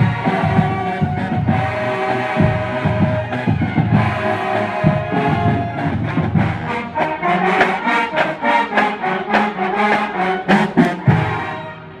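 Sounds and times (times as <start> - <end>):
steady drum beat: 0.0 - 8.3
marching band brass: 0.0 - 12.0.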